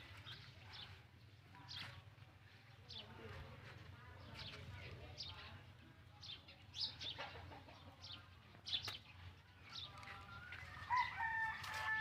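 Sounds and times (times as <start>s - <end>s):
chickens chirping and clucking: 0.0s - 12.0s
rooster crowing: 10.5s - 12.0s.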